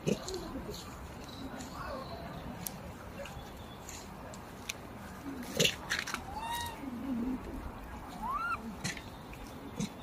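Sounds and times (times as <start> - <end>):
macaque coos: 5.6 - 7.4, 8.1 - 9.0.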